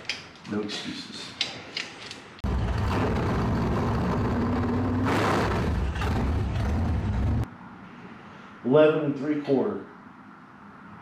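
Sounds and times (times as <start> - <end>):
loud vehicle engine: 2.4 - 7.5.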